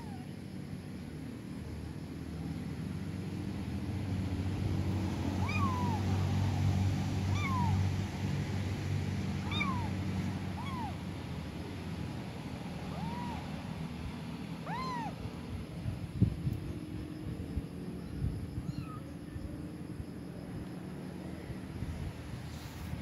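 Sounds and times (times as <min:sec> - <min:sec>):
kittens meowing: 0:00.0 - 0:00.3, 0:05.4 - 0:06.1, 0:07.3 - 0:07.8, 0:09.4 - 0:11.0, 0:12.9 - 0:13.5, 0:14.6 - 0:15.2, 0:18.6 - 0:19.1
steady low rumble: 0:00.4 - 0:23.0.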